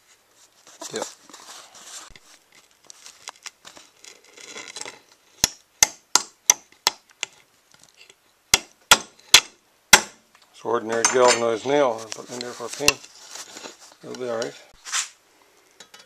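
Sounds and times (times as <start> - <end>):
faint handling noise: 0.0 - 5.2, 10.4 - 15.2.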